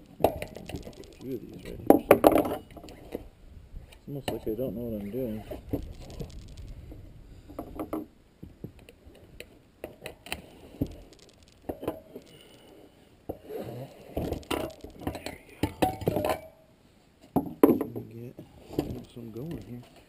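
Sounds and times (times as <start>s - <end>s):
screwdrivers clinking on wheel rim: 0.2s - 3.0s, 14.2s - 16.6s.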